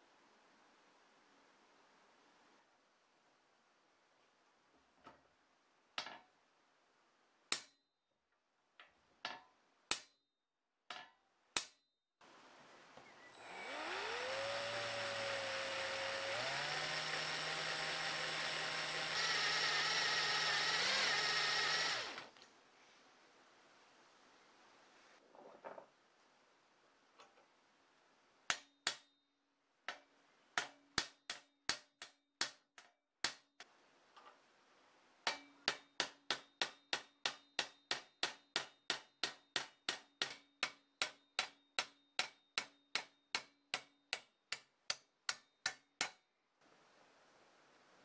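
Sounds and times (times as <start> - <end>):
hammer tapping metal punch: 35.3 - 46.2.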